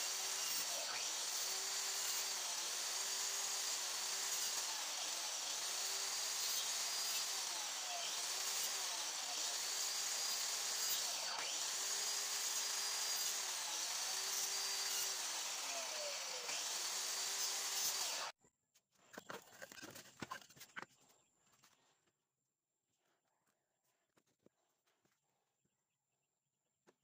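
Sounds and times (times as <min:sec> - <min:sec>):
miter saw cutting wood: 0:00.0 - 0:18.3.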